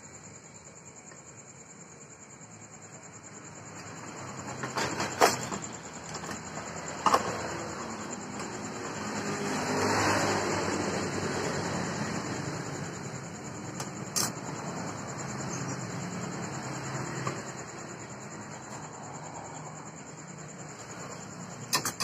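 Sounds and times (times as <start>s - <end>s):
vehicle engine passing by: 7.3s - 13.3s.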